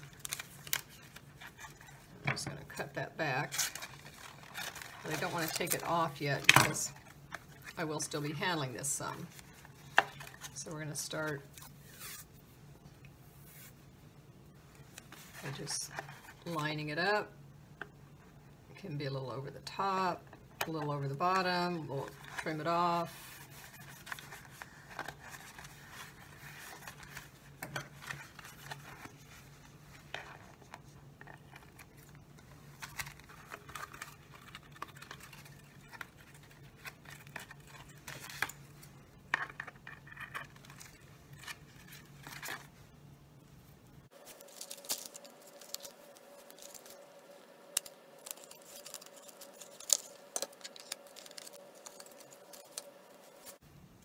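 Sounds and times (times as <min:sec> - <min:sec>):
tape and thin plastic crinkling: 0:00.0 - 0:02.5, 0:03.4 - 0:07.8, 0:22.0 - 0:42.7, 0:44.1 - 0:53.6.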